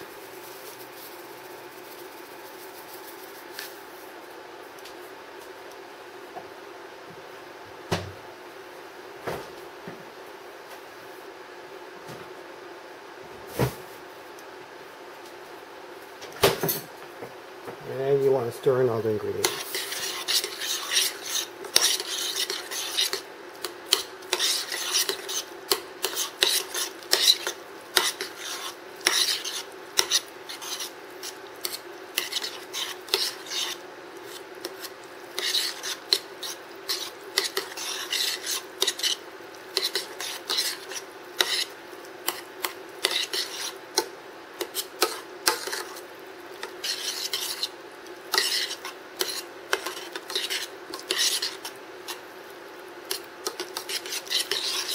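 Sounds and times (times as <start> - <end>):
metal spoon scraping saucepan: 19.4 - 23.2, 23.9 - 30.9, 31.6 - 39.2, 42.3 - 46.0, 46.6 - 47.7, 48.3 - 52.2, 53.1 - 54.9.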